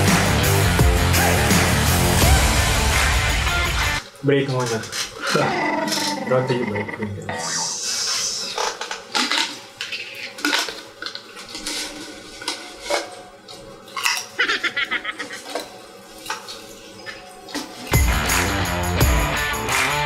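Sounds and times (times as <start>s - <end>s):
background music: 0.0s - 4.0s, 17.8s - 20.0s
chips crunching: 8.6s - 14.4s.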